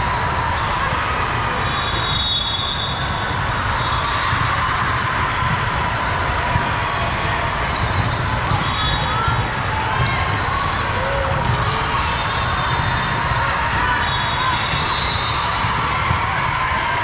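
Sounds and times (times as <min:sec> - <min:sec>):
crowd chatter: 0:00.0 - 0:17.0
volleyball play: 0:00.0 - 0:17.0
high whistle tones: 0:01.7 - 0:03.1.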